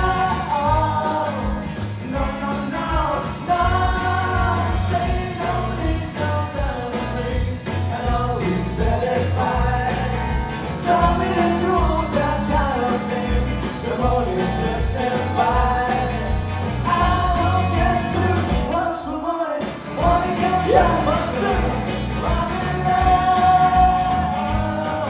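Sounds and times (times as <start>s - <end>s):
bass guitar: 0.0s - 18.9s, 19.6s - 25.0s
drums: 0.0s - 25.0s
electric guitars: 0.0s - 25.0s
sung lead vocal: 0.0s - 25.0s.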